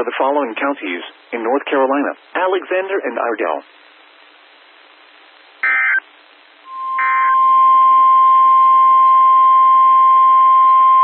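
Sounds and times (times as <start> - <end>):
faint static hiss: 0.0 - 11.0
buzzy digital data bursts: 5.6 - 6.0, 6.6 - 8.6
steady warning alarm tone: 5.6 - 6.0, 6.7 - 11.0.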